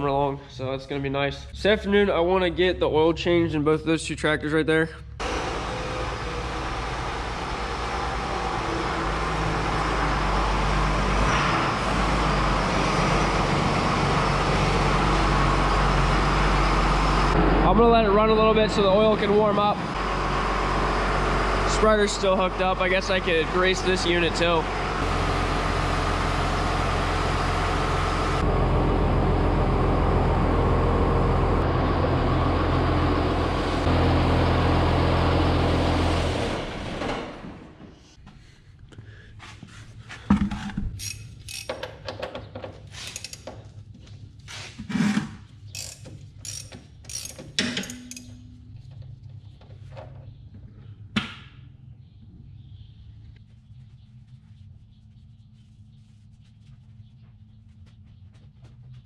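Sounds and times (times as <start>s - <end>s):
tractor engine idling: 5.2s - 37.1s
hand tools clicking on metal: 41.0s - 42.1s, 43.0s - 43.5s, 45.7s - 48.4s.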